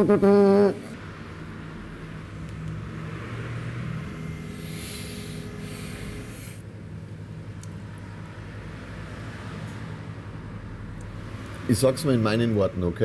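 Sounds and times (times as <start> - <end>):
low mechanical hum: 0.0 - 13.0
brief hiss: 4.6 - 6.6.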